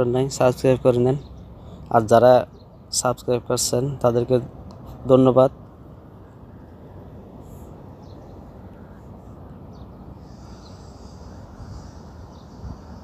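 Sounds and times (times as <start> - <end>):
low outdoor background noise: 0.0 - 13.0
short high bird calls: 9.7 - 13.0.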